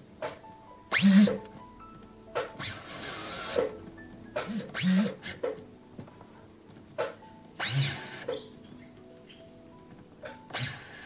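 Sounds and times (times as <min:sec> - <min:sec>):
rotary tool grinding metal: 0:00.9 - 0:01.4, 0:02.4 - 0:03.8, 0:04.4 - 0:05.6, 0:07.0 - 0:08.5, 0:10.5 - 0:11.0.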